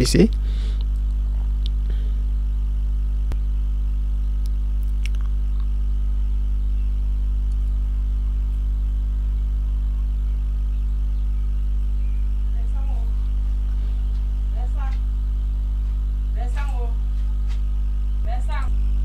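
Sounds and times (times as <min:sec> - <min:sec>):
low electrical hum: 0:00.0 - 0:19.0
sharp clicks: 0:07.4 - 0:07.8.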